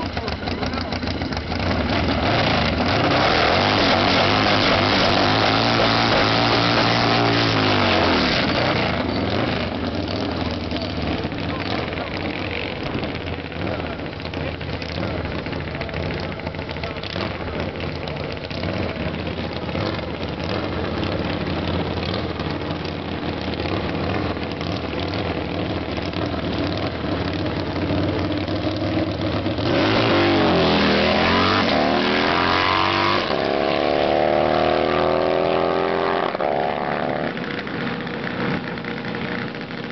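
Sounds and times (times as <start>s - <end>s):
motorcycle engine idling: 0.0s - 3.0s, 8.8s - 29.7s, 36.1s - 39.9s
motorcycle engine revving: 0.0s - 39.9s.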